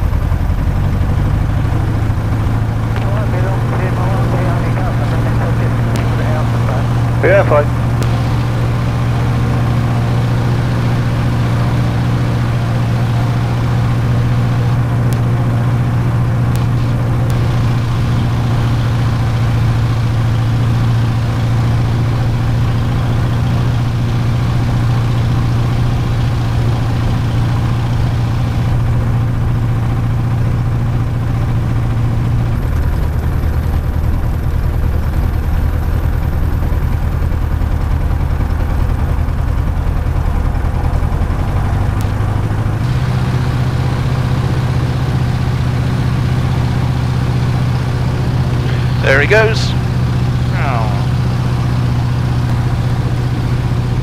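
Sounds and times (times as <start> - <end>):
aircraft piston engine running: 0.0 - 54.0.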